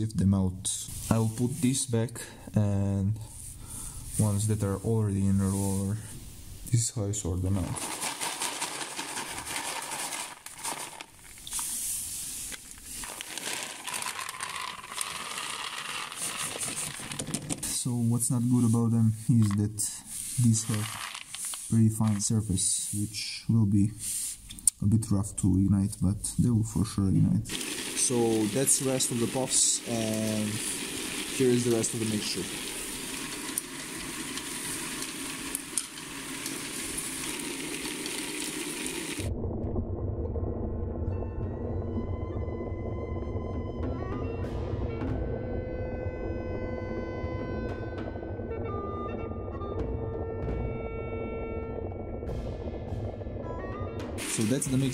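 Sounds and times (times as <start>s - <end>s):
drum tumbling granules hiss: 0.6s - 24.5s, 27.2s - 39.3s, 54.0s - 54.9s
rice puffs rattling in plastic tub: 7.4s - 18.7s, 19.3s - 22.7s, 27.5s - 39.3s, 54.2s - 54.9s
low music: 41.0s - 54.9s.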